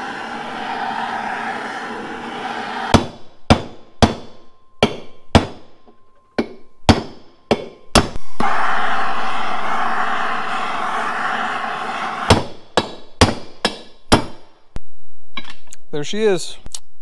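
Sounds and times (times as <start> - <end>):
gas torch hissing: 0.0 - 3.0, 8.2 - 12.6.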